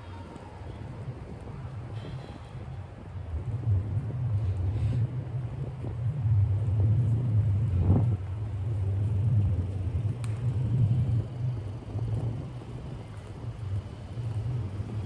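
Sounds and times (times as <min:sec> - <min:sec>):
low wavering street rumble: 0:00.0 - 0:15.0
faint tick: 0:10.1 - 0:10.9.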